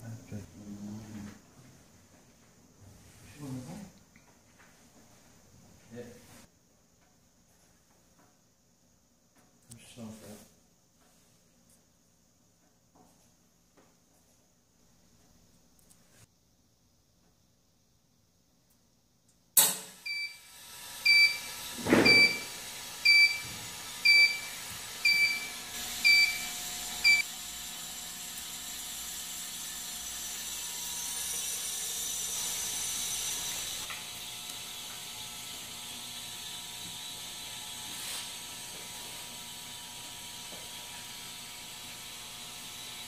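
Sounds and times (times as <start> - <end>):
sharp click: 19.6 - 19.9
autoclave beeping: 20.0 - 27.3.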